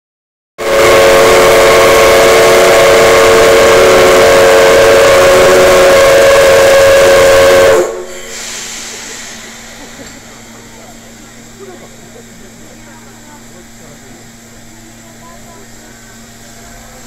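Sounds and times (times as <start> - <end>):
steam whistle blast: 0.6 - 10.5
steam hissing: 1.3 - 17.0.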